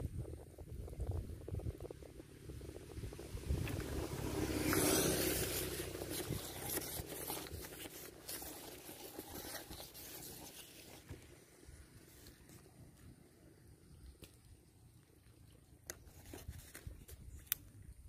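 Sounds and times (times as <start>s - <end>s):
sleeve brushing past camera: 3.4s - 13.0s.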